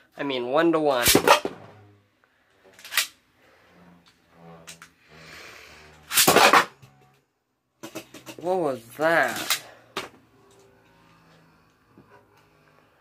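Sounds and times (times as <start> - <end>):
loud rasping burst: 3.4 - 6.8.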